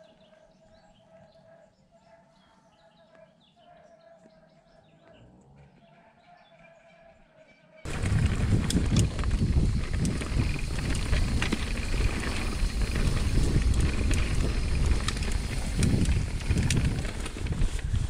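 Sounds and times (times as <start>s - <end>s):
bike tyres rolling: 7.9s - 18.0s
sharp clicks and rattles: 7.9s - 18.0s
wind buffeting microphone: 7.9s - 18.0s.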